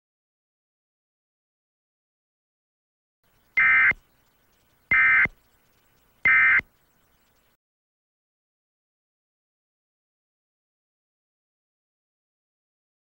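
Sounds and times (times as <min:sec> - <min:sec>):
electronic data bursts: 0:03.4 - 0:07.6.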